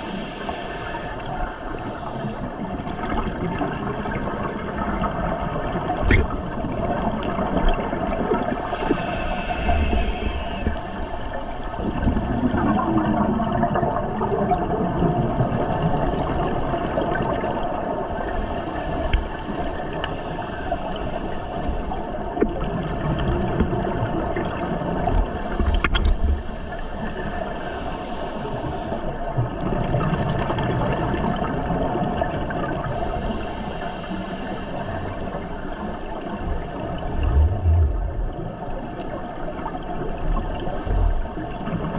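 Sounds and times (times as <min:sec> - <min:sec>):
exhaled bubbles underwater: 0:00.0 - 0:41.9
low underwater rumble: 0:36.4 - 0:41.9.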